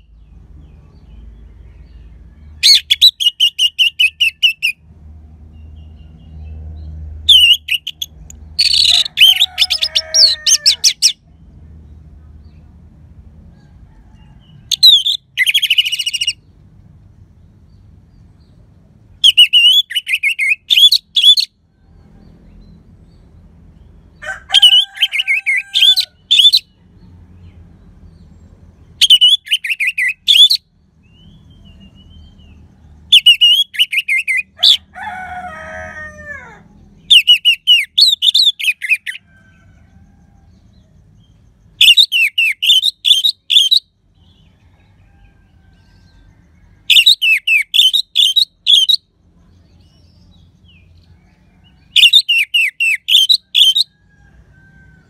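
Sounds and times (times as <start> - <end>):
thrush singing whistled phrases: 2.6 - 4.8, 7.3 - 10.3, 19.2 - 21.5, 29.0 - 30.6, 33.1 - 34.8, 37.1 - 39.2, 41.8 - 43.9, 46.9 - 49.1, 52.0 - 53.9.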